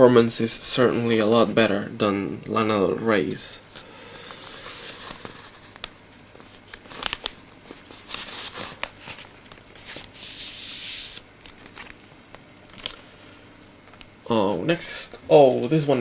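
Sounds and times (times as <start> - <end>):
cardboard sleeves scraping: 7.8 - 12.0.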